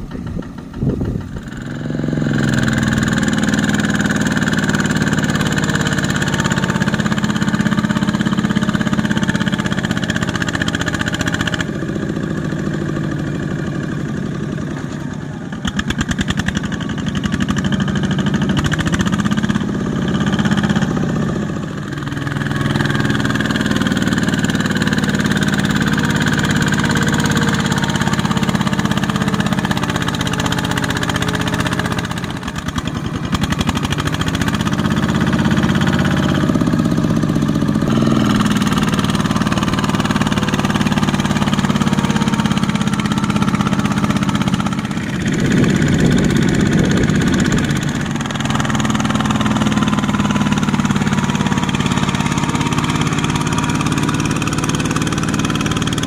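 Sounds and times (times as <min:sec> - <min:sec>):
diesel tractor engine labouring: 0:00.0 - 0:56.0.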